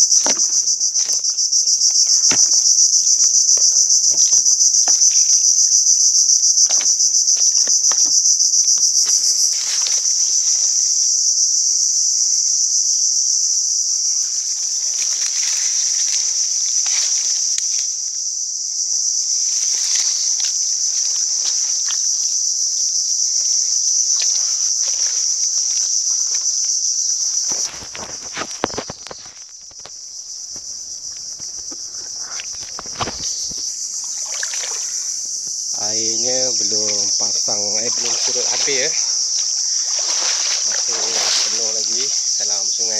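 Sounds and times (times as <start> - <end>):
footsteps in mud: 0.0 - 2.9, 24.0 - 26.6, 27.4 - 35.0, 37.9 - 42.2
insects buzzing: 0.0 - 42.9
knocks and rustles: 27.4 - 33.8.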